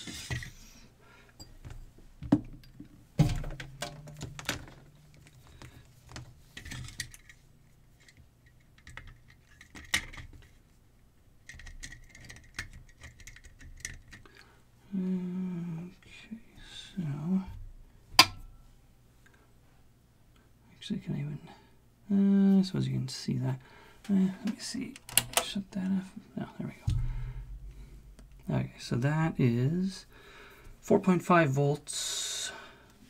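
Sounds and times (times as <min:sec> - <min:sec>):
plastic flashlight housing clattering: 0:03.4 - 0:05.6.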